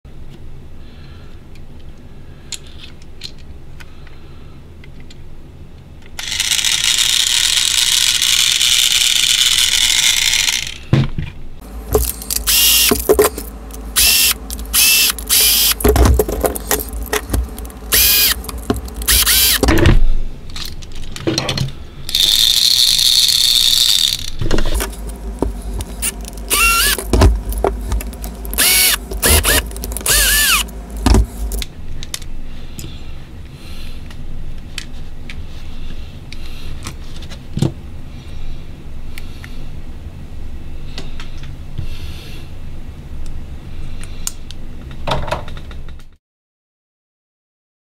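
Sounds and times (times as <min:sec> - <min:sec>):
small electric motor whirring: 0:06.2 - 0:10.8, 0:11.7 - 0:19.7, 0:22.1 - 0:31.7.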